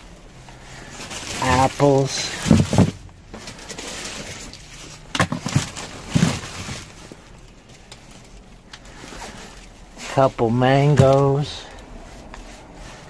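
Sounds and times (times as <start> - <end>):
plastic packaging rustling: 0.0 - 13.0.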